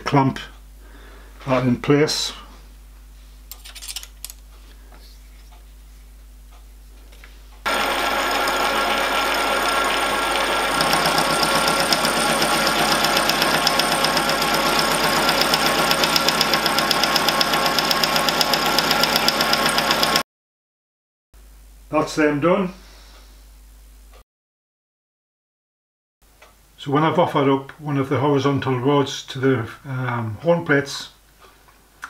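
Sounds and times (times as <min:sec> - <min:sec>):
fast pulsing of mill cutting metal: 0:07.7 - 0:20.2
milling machine whine: 0:07.7 - 0:20.2.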